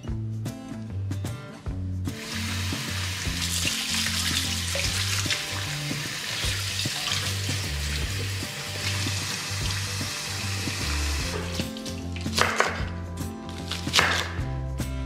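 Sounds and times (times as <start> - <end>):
faucet running into sink: 2.2 - 12.3.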